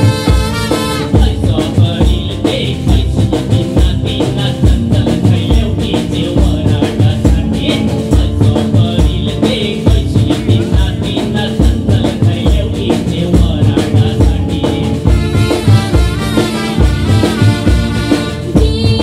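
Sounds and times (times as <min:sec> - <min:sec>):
held instrumental notes: 0:00.0 - 0:09.9, 0:12.8 - 0:19.0
steady drum beat: 0:00.0 - 0:19.0.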